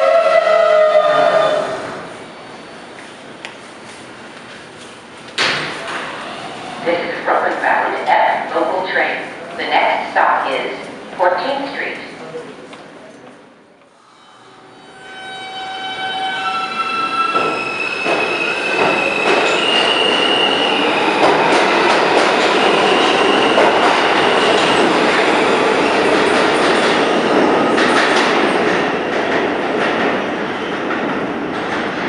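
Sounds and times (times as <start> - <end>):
train wheels rumbling on rails: 16.8 - 32.0.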